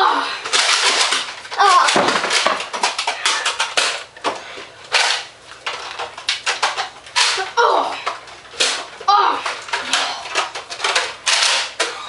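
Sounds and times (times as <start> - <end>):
child yelling: 1.6 - 2.0, 9.1 - 9.4.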